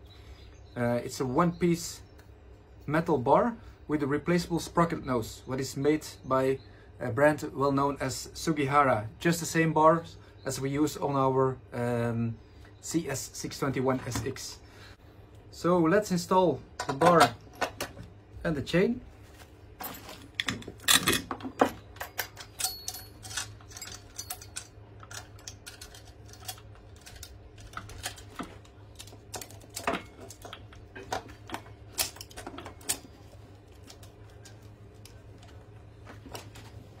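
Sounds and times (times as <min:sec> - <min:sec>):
saw chain links clinking: 0:22.0 - 0:28.5.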